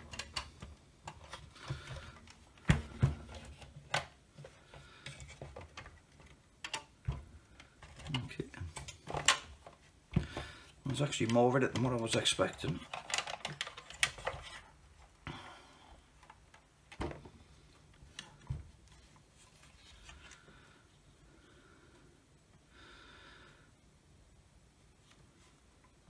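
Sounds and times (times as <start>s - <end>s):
plastic clicks and knocks: 0.0s - 10.4s, 11.2s - 14.6s.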